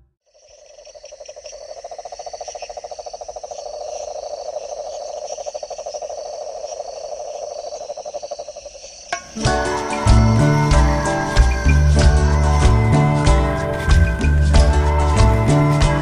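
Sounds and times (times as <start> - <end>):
insects chirring: 0.2 - 16.0
frogs trilling: 0.3 - 16.0
music: 9.2 - 16.0.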